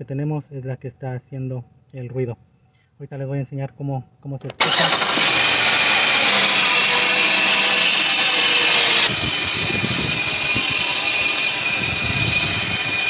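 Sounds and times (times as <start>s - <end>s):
belt drive whirring: 4.4s - 13.0s
car engine running: 4.5s - 13.0s.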